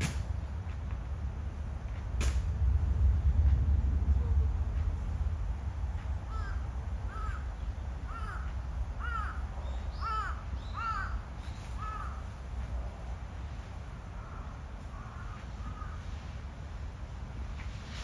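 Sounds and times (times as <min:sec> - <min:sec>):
steady low rumble: 0:00.0 - 0:18.0
crow cawing: 0:06.3 - 0:07.5, 0:08.1 - 0:11.2, 0:11.8 - 0:12.2, 0:14.2 - 0:16.0.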